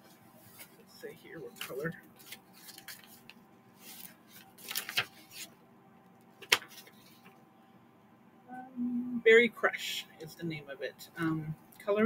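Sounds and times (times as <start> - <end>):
paper rustling and crinkling: 0.0 - 5.6, 6.4 - 7.4.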